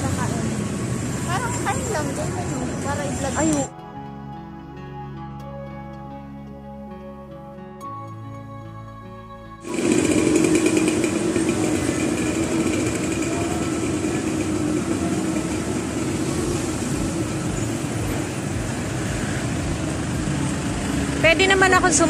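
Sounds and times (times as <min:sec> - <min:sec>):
soft background music: 0:02.1 - 0:12.7, 0:14.4 - 0:22.0
low motor hum: 0:09.6 - 0:22.0
loud mechanical rattle: 0:09.7 - 0:16.8.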